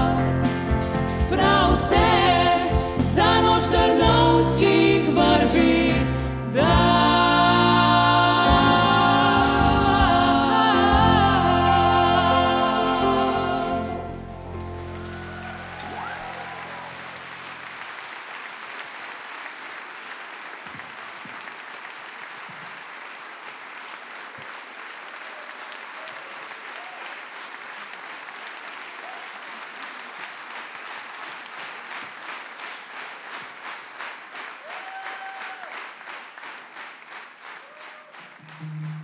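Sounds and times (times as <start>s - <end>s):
audience applauding: 14.4s - 39.0s.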